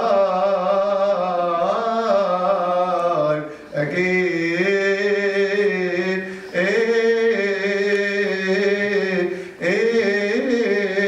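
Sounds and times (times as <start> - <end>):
man chanting: 0.0 - 11.0
man breathing in: 3.5 - 3.8, 6.3 - 6.6, 9.3 - 9.6.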